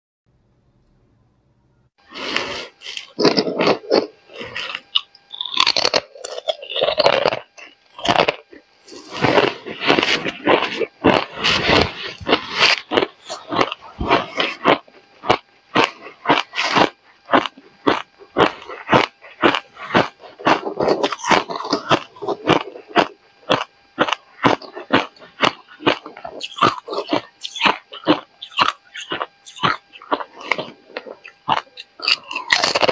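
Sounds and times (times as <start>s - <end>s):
ice crunching in mouth: 2.1s - 32.9s.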